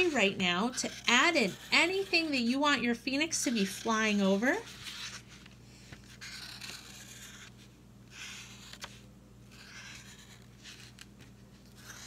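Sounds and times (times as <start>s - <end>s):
marker scratching on paper: 0.0s - 5.3s, 6.0s - 7.5s, 8.1s - 8.9s, 9.5s - 11.1s, 11.7s - 12.0s.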